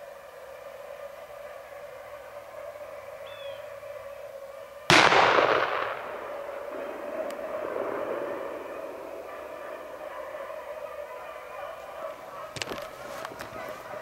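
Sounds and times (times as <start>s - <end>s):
shotgun shot echoing: 4.9s - 8.6s.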